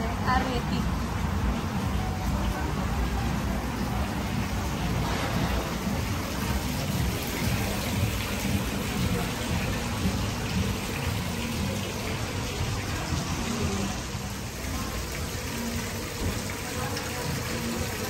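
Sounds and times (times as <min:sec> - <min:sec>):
water feature splashing: 0:00.0 - 0:18.0.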